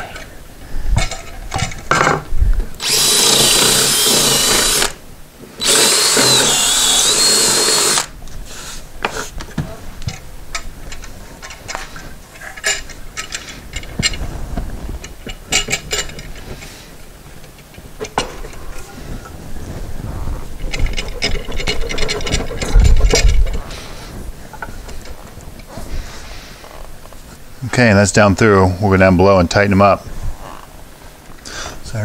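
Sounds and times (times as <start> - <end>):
cordless drill boring into wood: 2.8 - 5.0, 5.6 - 8.1.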